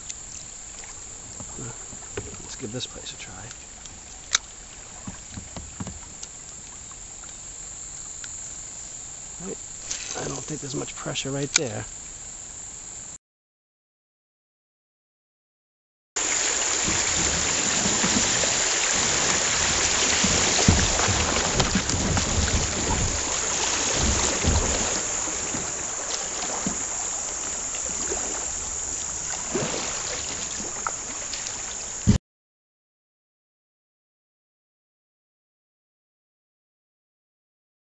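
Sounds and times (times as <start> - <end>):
low bumps: 0.0 - 7.1, 16.3 - 32.2
river water rushing over rocks: 16.2 - 32.2.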